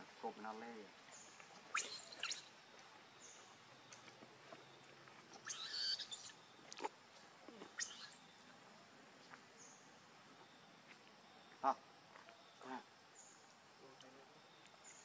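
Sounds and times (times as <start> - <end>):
high-pitched animal calls: 1.7 - 2.5, 5.4 - 6.4, 7.6 - 8.2.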